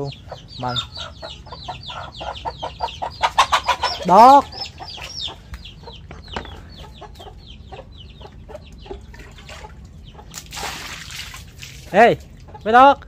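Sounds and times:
chicks peeping: 0:00.0 - 0:10.7, 0:12.4 - 0:12.9
chickens clucking: 0:00.0 - 0:10.8, 0:12.2 - 0:13.0.

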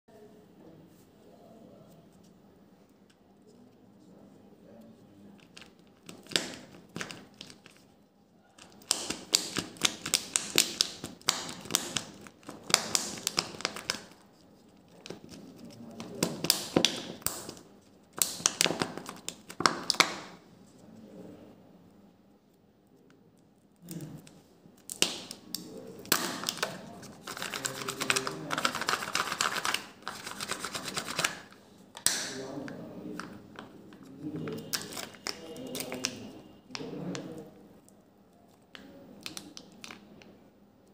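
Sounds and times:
plastic wrapper crinkling: 0:05.4 - 0:07.9, 0:08.6 - 0:20.3, 0:23.8 - 0:31.6, 0:33.2 - 0:36.4, 0:38.5 - 0:40.3.

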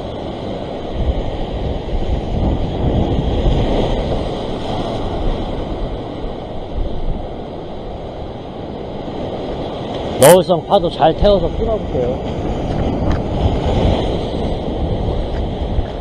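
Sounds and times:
surf washing over rocks: 0:00.0 - 0:16.0
wind buffeting microphone: 0:00.0 - 0:16.0.

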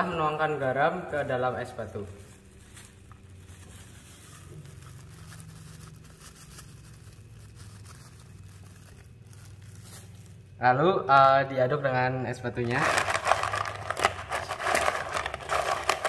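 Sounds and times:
low steady hum: 0:00.0 - 0:16.0
plastic bag crinkling: 0:01.2 - 0:10.6, 0:12.6 - 0:16.0
salt grains pattering on ice: 0:01.6 - 0:10.6, 0:12.7 - 0:16.0.

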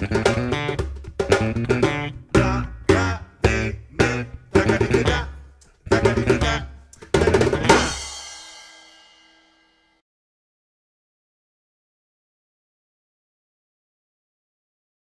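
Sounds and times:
electric bass: 0:00.0 - 0:08.1
djembe hits: 0:00.0 - 0:09.2.

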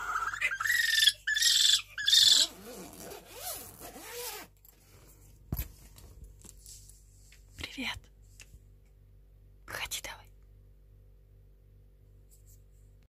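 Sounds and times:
owl calling: 0:00.0 - 0:02.6.

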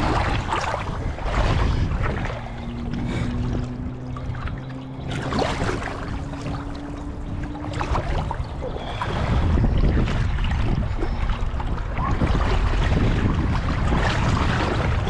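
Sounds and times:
river water splashing: 0:00.0 - 0:15.0.

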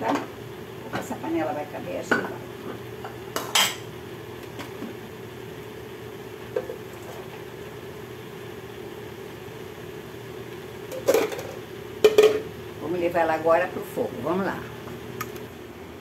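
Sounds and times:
steady low hum: 0:00.0 - 0:16.0
pan clattering against kitchenware: 0:10.9 - 0:12.4.

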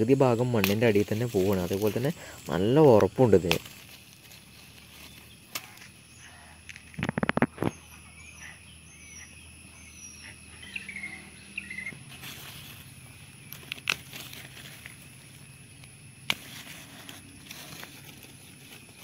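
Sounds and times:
leaf litter and twigs crackling: 0:00.0 - 0:08.6, 0:10.6 - 0:19.0
faint bird chirps: 0:04.5 - 0:13.8.

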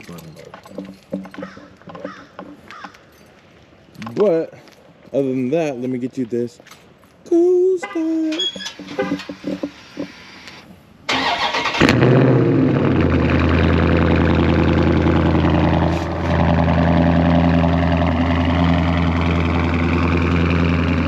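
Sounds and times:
car engine cold start and idle: 0:08.0 - 0:21.0.

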